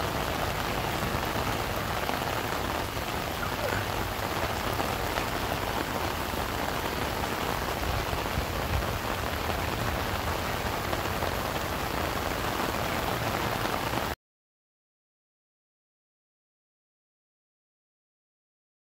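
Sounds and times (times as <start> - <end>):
steady rain hiss: 0.0 - 14.2.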